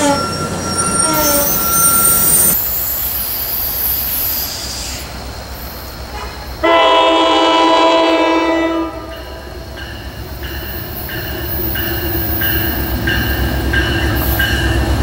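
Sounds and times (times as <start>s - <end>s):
low rumble of train: 0.0s - 15.0s
locomotive horn chord: 6.2s - 9.5s.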